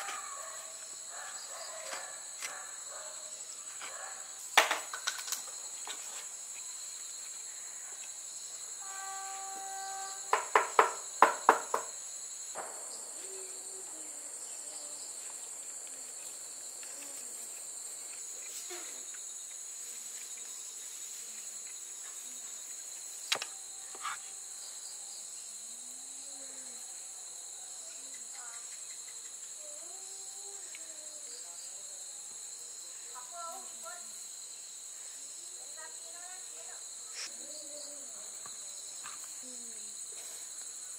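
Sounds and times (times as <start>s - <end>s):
insects chirring: 0.0s - 40.9s.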